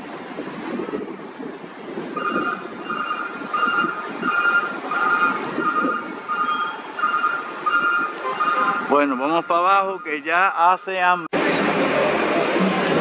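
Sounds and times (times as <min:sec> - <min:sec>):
wind buffeting microphone: 0:00.0 - 0:09.2
short electronic beeps: 0:02.2 - 0:10.2.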